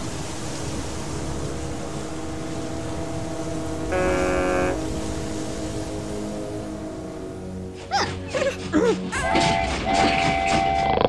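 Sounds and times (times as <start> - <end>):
ship's horn blast: 3.7 - 7.6.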